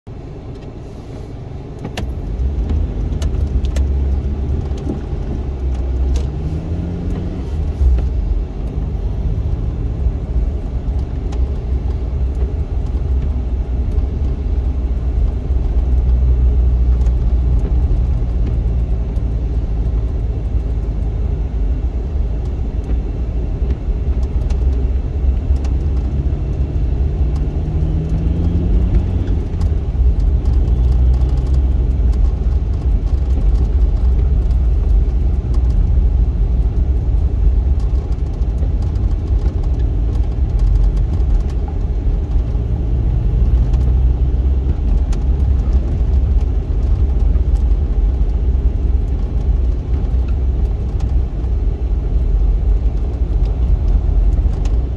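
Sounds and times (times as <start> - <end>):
car engine and tyres rumbling: 0.1 - 54.9.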